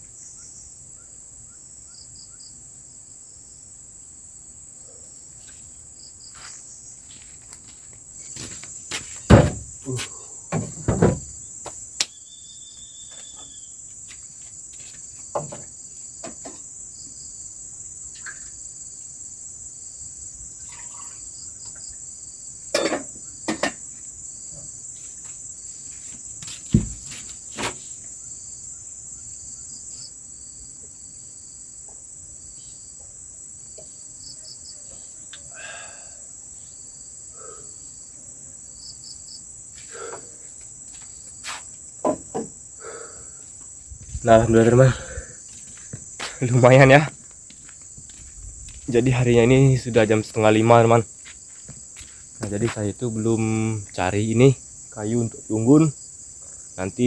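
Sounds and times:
insects buzzing: 0:00.0 - 0:57.0
sharp knocks and thumps: 0:08.3 - 0:11.8, 0:15.3 - 0:16.6, 0:22.7 - 0:23.9, 0:26.1 - 0:27.9, 0:41.5 - 0:42.6.

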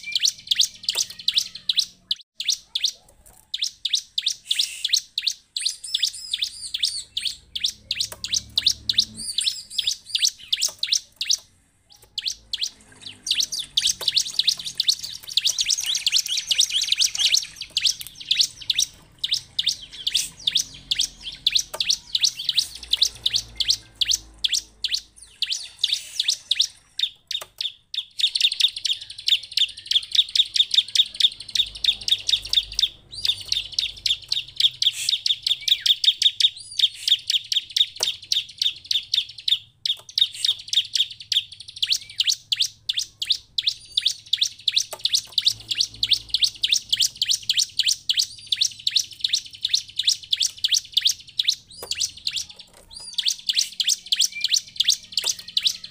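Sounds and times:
bird chirping rapidly: 0:00.0 - 0:55.9.

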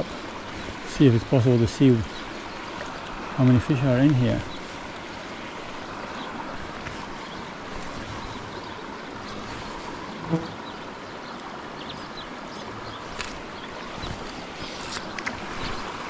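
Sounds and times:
river water rushing: 0:00.0 - 0:16.0.

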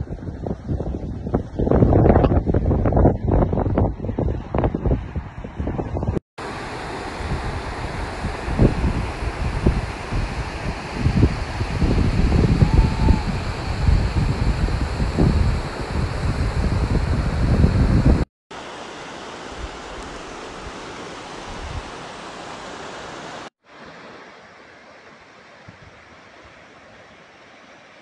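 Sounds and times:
wind buffeting microphone: 0:00.0 - 0:06.2, 0:07.0 - 0:18.3
rushing flood water: 0:06.4 - 0:28.0.

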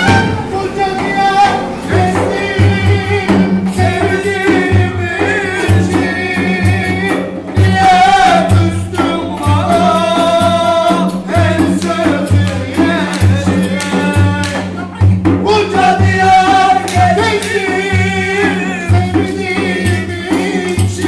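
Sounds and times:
clarinet melody: 0:00.0 - 0:01.9
hand drum beat: 0:00.0 - 0:21.0
man singing: 0:00.0 - 0:21.0.

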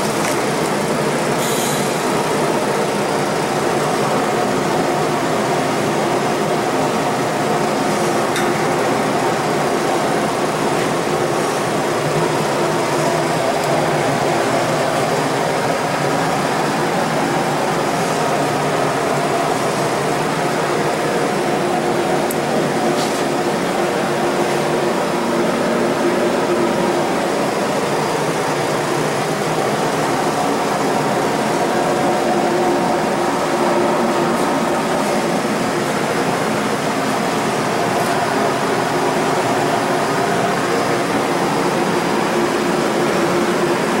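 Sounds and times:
workshop machinery droning: 0:00.0 - 0:44.0.

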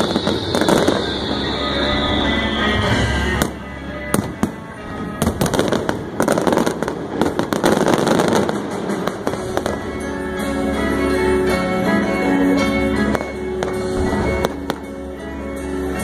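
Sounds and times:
fireworks bangs: 0:00.0 - 0:10.2
fireworks crackle: 0:00.0 - 0:16.0
music playing: 0:00.0 - 0:16.0.

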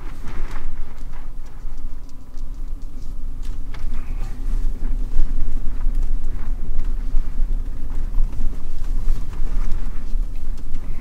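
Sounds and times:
stones ticking under wheels: 0:00.0 - 0:11.0
vehicle engine and tyres rumbling: 0:00.0 - 0:11.0.

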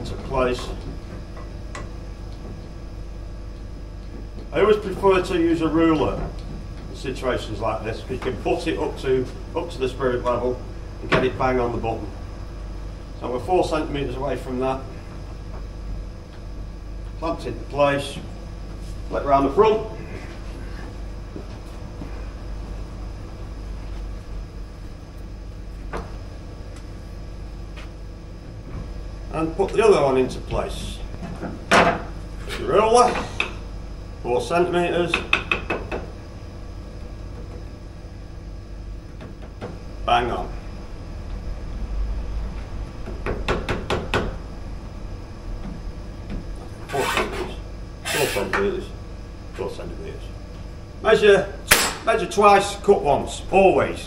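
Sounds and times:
arcade background hum: 0:00.0 - 0:54.0.

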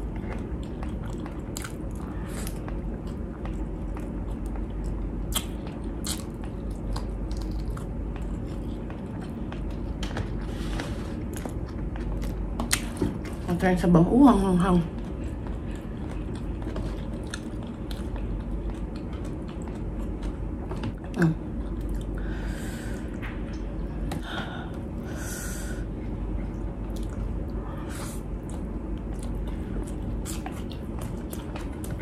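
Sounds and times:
chewing and lip-smacking: 0:00.0 - 0:13.5, 0:14.8 - 0:22.2, 0:26.4 - 0:32.0.

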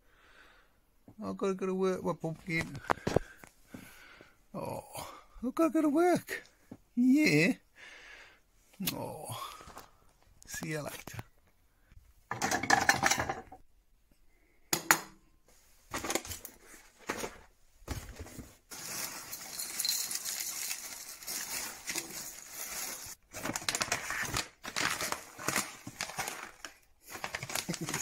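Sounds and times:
plastic bag crinkling: 0:18.2 - 0:28.0
cereal pouring into bowl: 0:18.7 - 0:23.2.

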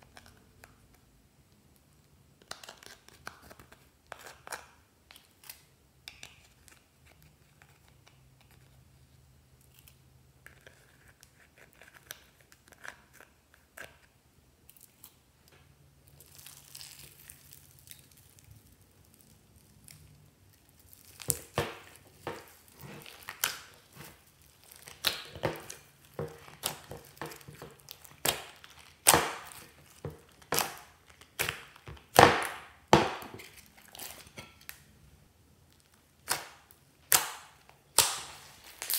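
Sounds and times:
sticky slime crackling pops: 0:20.8 - 0:33.4, 0:36.2 - 0:38.9.

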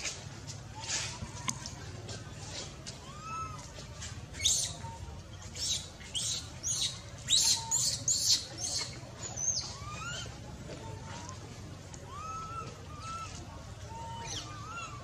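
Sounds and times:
baby monkey squealing: 0:04.4 - 0:04.8, 0:05.5 - 0:10.3, 0:14.0 - 0:15.0.

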